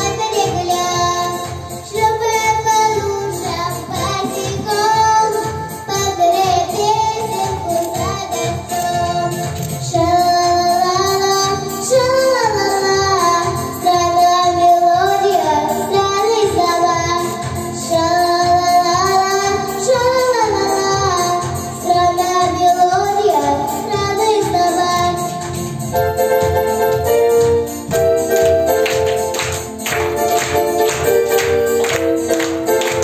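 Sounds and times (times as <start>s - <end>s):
girl singing into microphone: 0.0s - 25.6s
backing track with steady beat: 0.0s - 33.0s.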